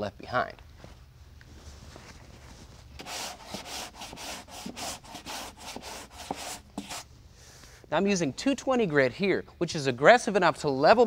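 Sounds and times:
sanding block stroking back and forth: 3.0s - 7.0s.

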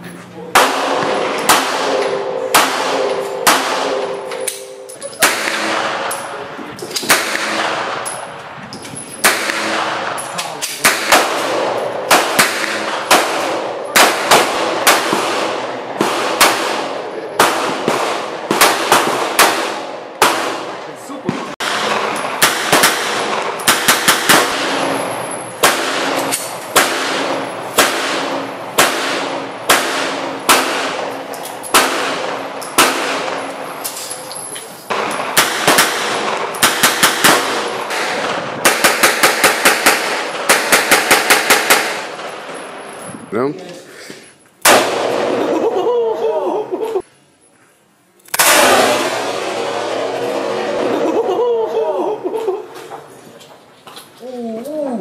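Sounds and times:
handgun shots: 0.6s - 6.3s, 6.9s - 8.2s, 9.2s - 20.7s, 21.3s - 25.0s, 25.6s - 34.0s, 34.9s - 42.3s.

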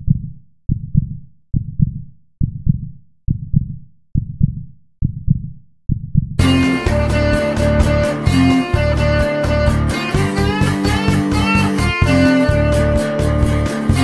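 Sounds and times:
heartbeat thumps: 0.0s - 6.6s
blues band music: 6.4s - 14.0s.

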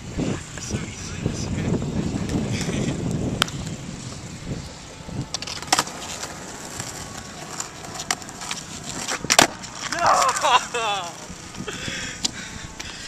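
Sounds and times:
skateboard wheels rolling on asphalt: 0.0s - 13.0s
skateboard clacks: 5.3s - 10.5s.

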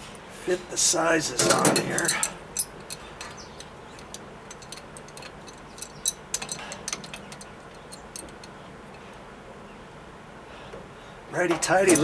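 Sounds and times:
wrenches clicking on metal fitting: 1.4s - 8.6s, 11.6s - 12.0s.

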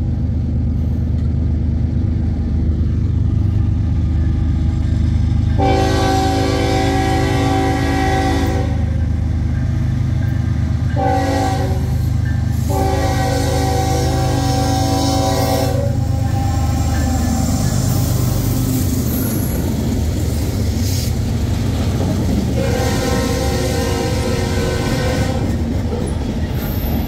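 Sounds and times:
train low rumble: 0.0s - 27.0s
train horn chord: 5.5s - 9.0s, 10.9s - 17.9s, 22.6s - 25.6s.

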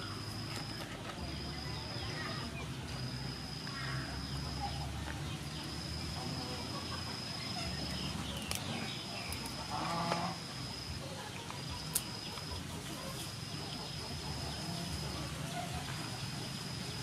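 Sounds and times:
high-pitched whine: 0.0s - 17.0s
chicken clucking: 4.5s - 16.7s.

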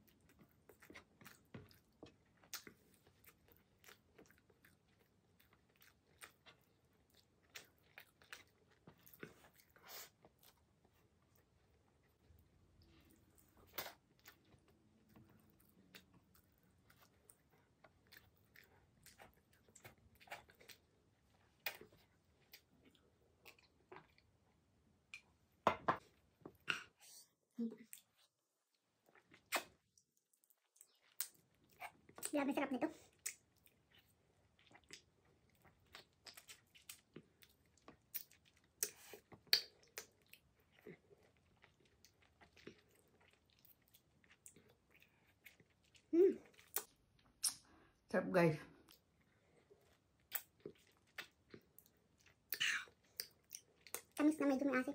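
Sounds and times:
soft chewing: 0.0s - 48.1s, 48.7s - 54.9s
wet mouth clicks and lip smacks: 29.4s - 29.8s, 38.1s - 40.2s, 46.7s - 47.7s, 50.2s - 51.4s.

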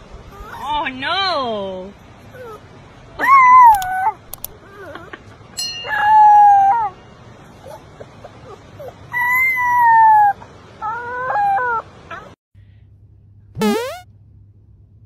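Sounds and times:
puppy howling: 5.9s - 7.0s, 8.5s - 12.4s.

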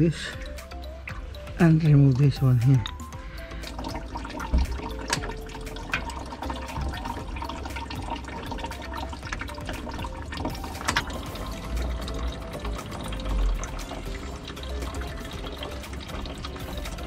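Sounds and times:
liquid pouring into a pan: 3.2s - 17.0s
sharp clicks and knocks: 9.2s - 11.3s.

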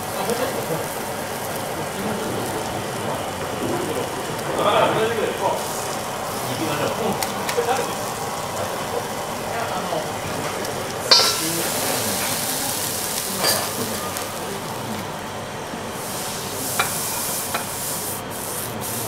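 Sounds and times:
food sizzling on griddle: 0.0s - 19.0s
metal spatulas clicking on griddle: 11.1s - 11.5s.

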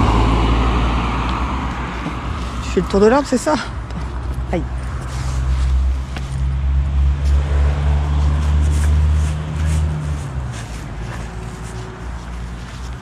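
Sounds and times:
car driving past: 0.0s - 3.0s, 5.0s - 12.1s.

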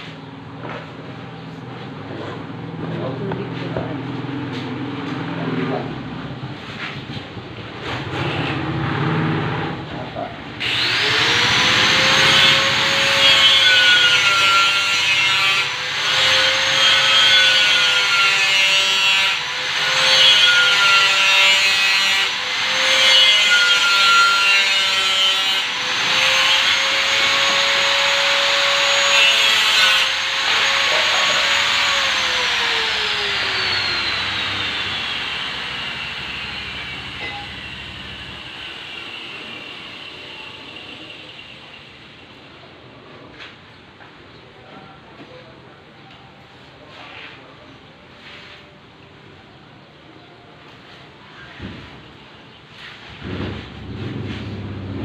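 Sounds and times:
harsh grinding noise: 4.5s - 42.2s
power tool high whine: 10.6s - 42.2s.

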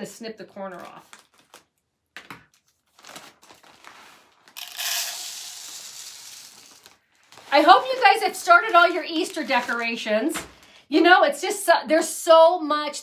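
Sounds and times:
plastic bag crinkling: 2.6s - 10.8s
rice pouring into glass cup: 4.5s - 7.0s.

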